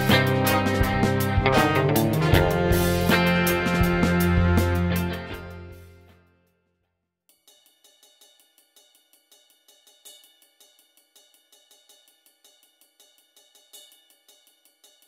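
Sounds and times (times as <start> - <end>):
faint music with ticking beat: 7.3 - 15.0.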